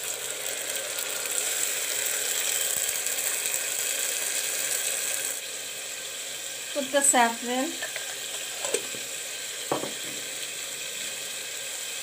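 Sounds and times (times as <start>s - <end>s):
paste sizzling in hot oil: 0.0s - 12.0s.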